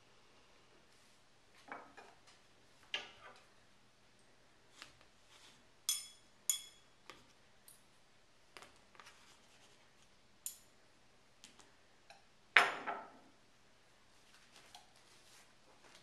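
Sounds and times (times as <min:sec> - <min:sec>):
cutlery clinking on a plate: 0:05.9 - 0:06.9.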